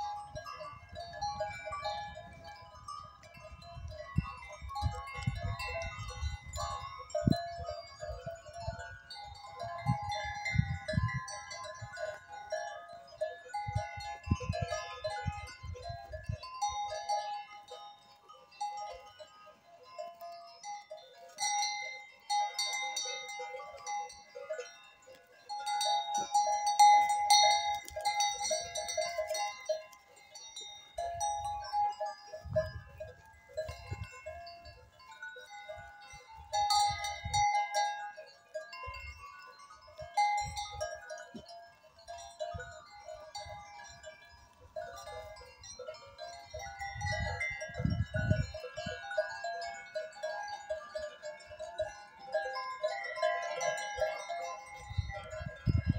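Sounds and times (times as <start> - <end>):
wind rumble on microphone: 0.0 - 12.2, 13.6 - 17.0, 32.3 - 35.0, 43.4 - 49.1, 54.7 - 55.9
livestock bells clanking: 0.0 - 55.9.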